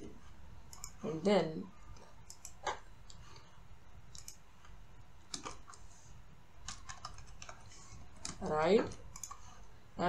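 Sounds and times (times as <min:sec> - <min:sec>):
computer keyboard and mouse clicks: 0:00.7 - 0:01.0, 0:01.9 - 0:03.3, 0:04.1 - 0:05.9, 0:06.6 - 0:09.6.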